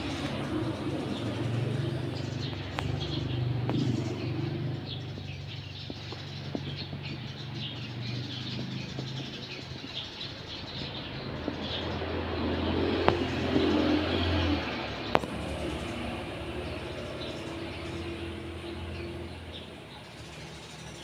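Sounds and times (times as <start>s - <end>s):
sparrows chirping: 0.0s - 21.0s
steady low hum: 12.0s - 20.2s.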